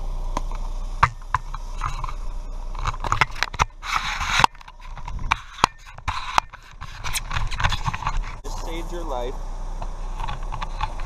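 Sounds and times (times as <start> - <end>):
camera handling knocks and rubs: 2.8 - 8.4.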